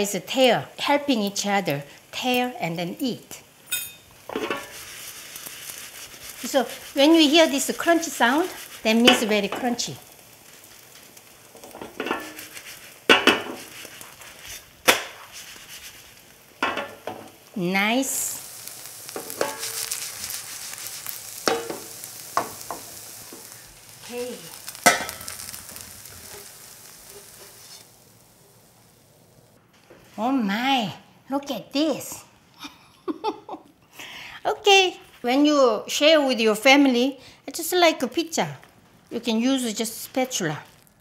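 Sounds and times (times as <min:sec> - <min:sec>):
pancake sizzling in oil: 0:00.0 - 0:30.6, 0:36.6 - 0:41.0
crunchy crackles: 0:04.2 - 0:16.6, 0:17.3 - 0:30.2, 0:38.6 - 0:41.0.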